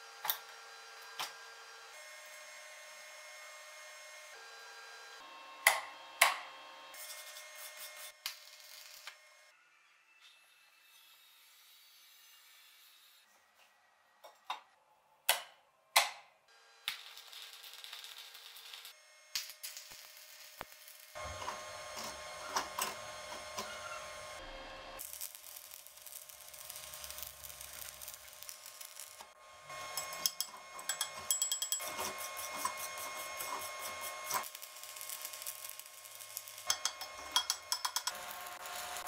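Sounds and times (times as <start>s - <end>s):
welding arc crackling: 7.0s - 9.2s, 16.8s - 23.7s, 25.0s - 31.0s, 31.8s - 39.0s.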